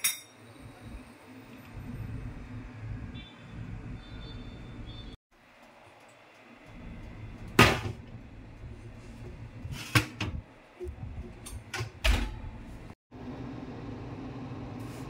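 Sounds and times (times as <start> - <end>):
oven knocks and clanks: 9.3 - 12.7.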